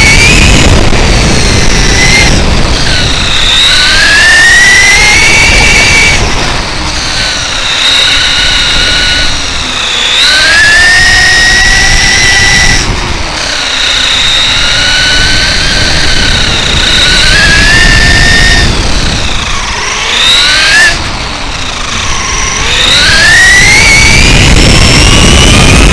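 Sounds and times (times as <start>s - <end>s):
electric motor whining: 0.0s - 25.9s
tyres rumbling on asphalt: 0.0s - 25.9s
wind noise: 0.0s - 25.9s.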